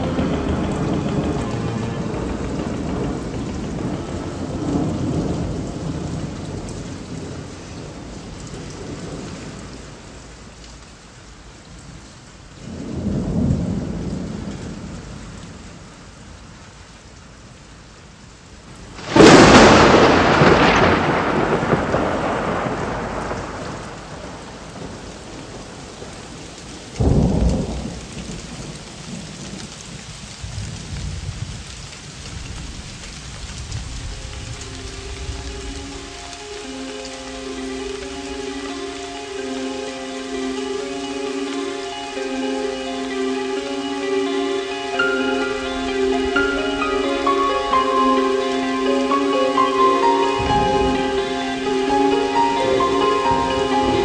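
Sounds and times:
thunder rumbling: 0.0s - 10.5s, 12.6s - 16.0s, 18.9s - 31.6s, 32.2s - 54.0s
steady rain: 0.0s - 54.0s
sharp thunderclap: 19.0s - 25.0s.

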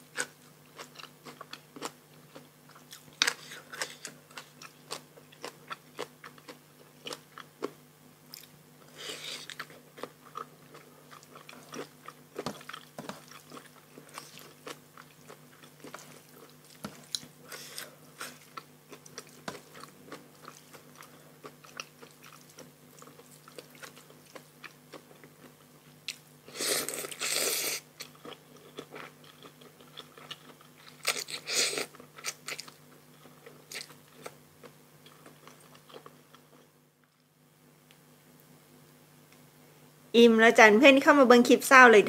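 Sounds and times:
close chewing with wet clicks: 9.4s - 17.3s, 18.2s - 26.2s, 28.0s - 31.3s.

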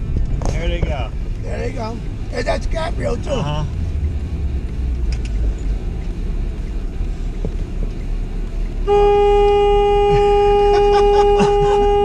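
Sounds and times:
vehicle engine and road noise: 0.0s - 12.0s
vehicle horn long note: 8.8s - 12.0s.

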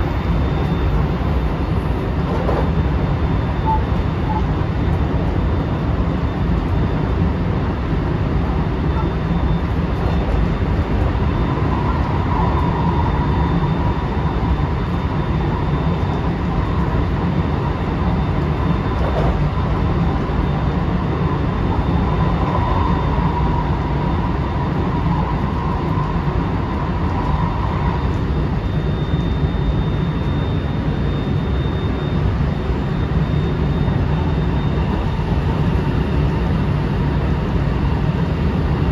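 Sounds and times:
train wheels rumbling on rail: 0.0s - 5.2s, 8.5s - 17.4s, 18.0s - 28.6s
faint high whine: 0.0s - 38.9s.

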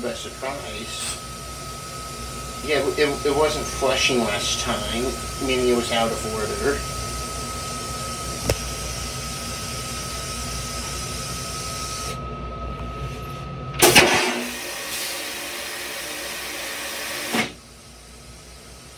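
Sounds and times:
toilet flushing: 13.8s - 18.9s.

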